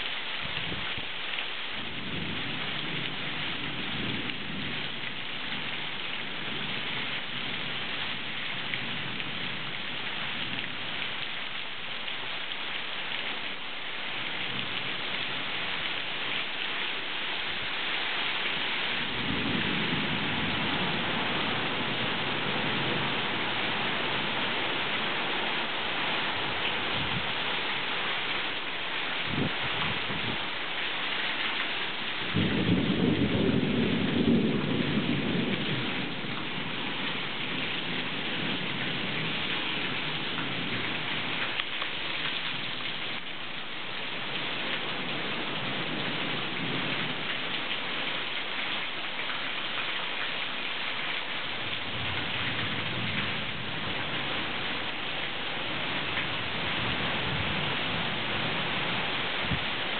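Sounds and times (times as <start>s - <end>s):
heavy rain hissing: 0.0s - 59.9s
low rumble of thunder: 1.7s - 11.0s, 18.9s - 25.2s, 29.2s - 30.5s, 32.2s - 41.6s, 44.2s - 47.9s, 51.6s - 55.0s, 55.6s - 59.9s.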